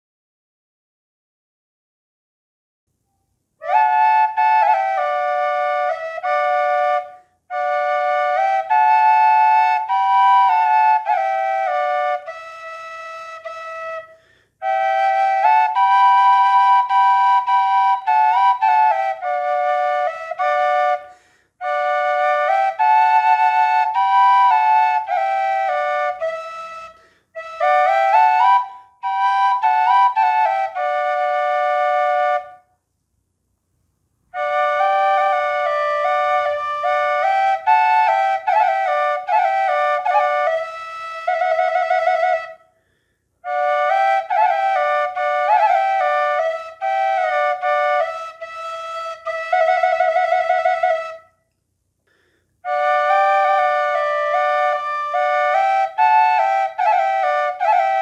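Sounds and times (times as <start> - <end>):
wooden double flute melody: 3.0 - 32.8, 34.3 - 51.6, 52.6 - 58.0
player's quick breaths: 14.1 - 14.6, 21.0 - 21.6, 26.9 - 27.4, 42.7 - 43.4, 52.0 - 52.6.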